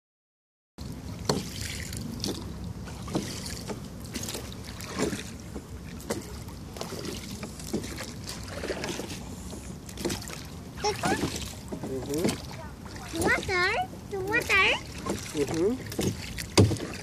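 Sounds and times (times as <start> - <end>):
oars splashing and knocking: 0.8 - 17.0.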